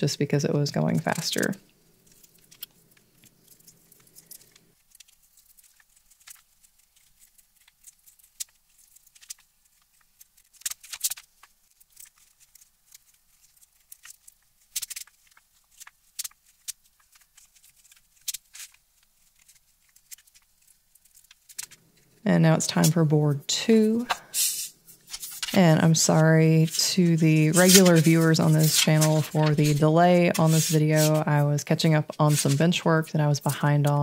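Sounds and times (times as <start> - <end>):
paper crackling: 0.7 - 34.0
knife scraping paper: 23.7 - 32.8.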